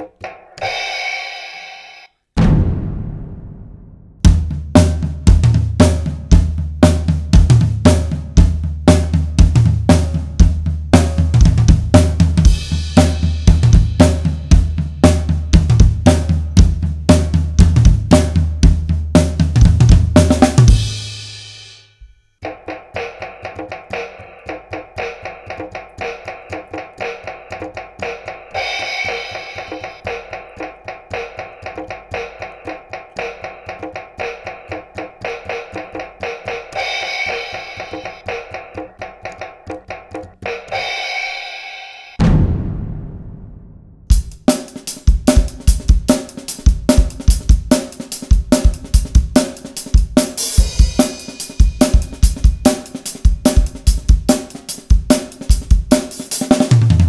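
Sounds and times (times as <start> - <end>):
acoustic drum kit played fast: 0.0 - 1.8, 2.4 - 57.0
toy electronic drum sounds: 0.0 - 2.1, 19.6 - 42.2, 44.1 - 57.0.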